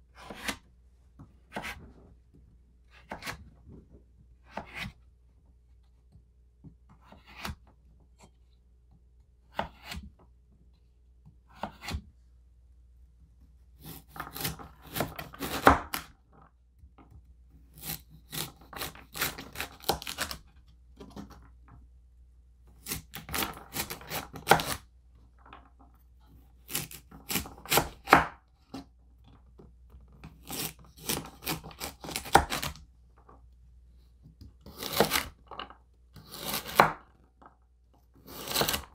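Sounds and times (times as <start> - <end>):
knife chopping on wooden board: 1.5 - 1.8, 3.0 - 3.4, 4.5 - 5.0, 9.5 - 10.1, 11.5 - 12.0, 13.8 - 16.1, 22.8 - 24.8, 26.6 - 28.4, 30.3 - 32.8, 34.6 - 35.4, 36.2 - 37.0, 38.2 - 38.9.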